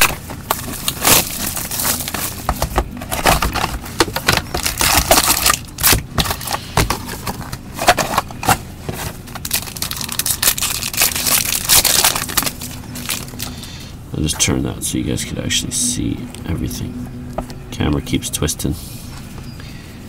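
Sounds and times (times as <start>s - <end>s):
wrappers crinkling and tearing: 0.0s - 13.8s.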